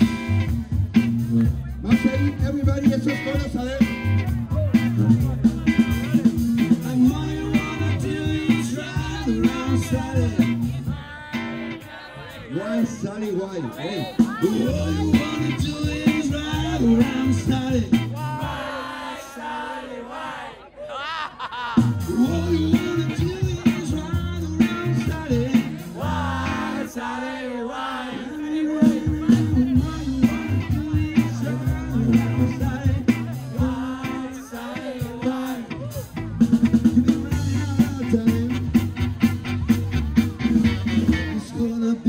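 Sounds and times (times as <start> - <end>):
drums: 0.0 - 11.8, 12.8 - 19.0, 21.4 - 27.2, 28.6 - 42.0
electric bass: 0.0 - 11.8, 14.2 - 18.6, 21.8 - 26.9, 28.8 - 34.4, 35.0 - 42.0
melodic lead line: 0.0 - 11.8, 14.2 - 18.3, 22.0 - 26.9, 28.8 - 34.4
man singing: 1.8 - 4.1, 4.7 - 18.8, 21.0 - 27.2, 27.9 - 39.2, 40.6 - 42.0.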